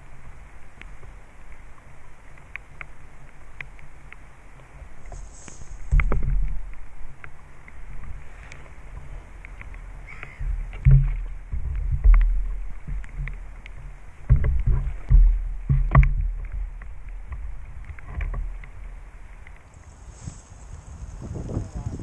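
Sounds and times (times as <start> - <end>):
sharp knocks: 10.4 - 13.4, 14.3 - 18.8.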